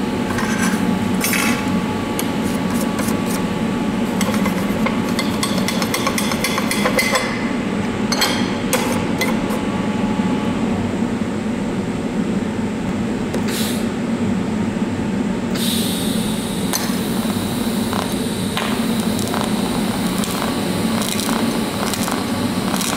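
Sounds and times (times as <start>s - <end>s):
welding arc hissing: 15.6s - 22.9s.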